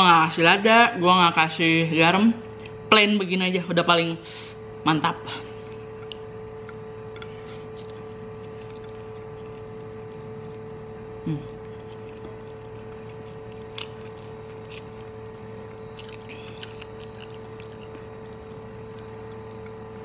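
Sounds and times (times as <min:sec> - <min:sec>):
electrical hum: 0:00.0 - 0:20.0
noodles slurped and chewed: 0:07.1 - 0:10.8, 0:11.5 - 0:19.7
person murmuring: 0:11.2 - 0:11.6.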